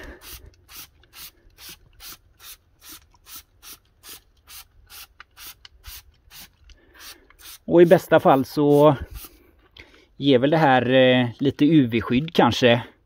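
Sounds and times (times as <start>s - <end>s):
spray bottle hissing squirts: 0.2s - 9.4s.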